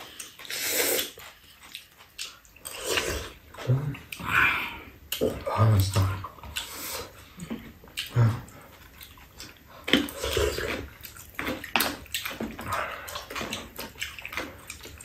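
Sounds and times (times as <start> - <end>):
wet slurping and sipping: 0.0 - 5.0, 8.0 - 15.0
chewing: 0.0 - 15.0.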